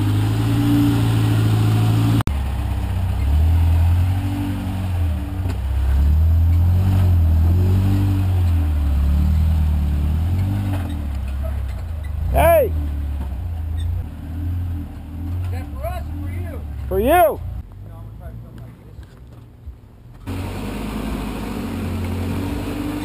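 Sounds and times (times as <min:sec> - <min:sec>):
truck engine revving: 0:00.0 - 0:17.6, 0:20.3 - 0:23.0.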